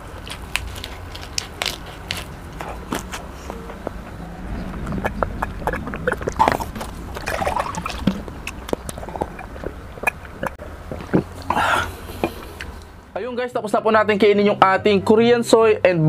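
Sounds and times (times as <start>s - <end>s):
person gulping water: 4.6s - 12.8s
wet mouth clicks: 4.8s - 12.9s.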